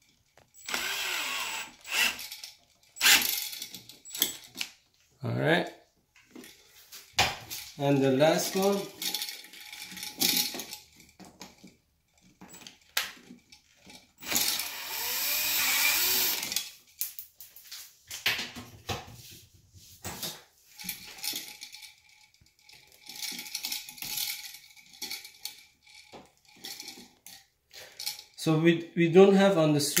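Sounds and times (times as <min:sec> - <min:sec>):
metal clicks and scrapes of wire: 0:20.7 - 0:28.4.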